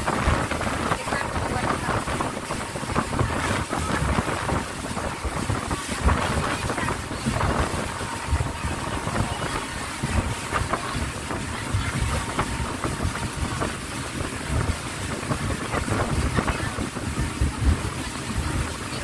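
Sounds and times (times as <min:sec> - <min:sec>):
boat engine: 0:00.0 - 0:19.0
water rushing: 0:00.0 - 0:19.0
wind buffeting microphone: 0:00.0 - 0:19.0.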